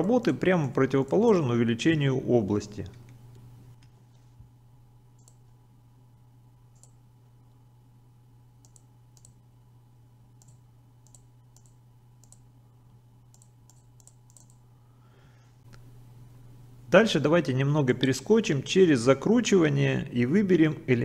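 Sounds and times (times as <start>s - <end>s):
low electrical hum: 0.0s - 21.0s
computer mouse clicks: 5.2s - 5.4s, 6.8s - 7.0s, 8.6s - 9.4s, 10.4s - 12.4s, 13.3s - 14.6s.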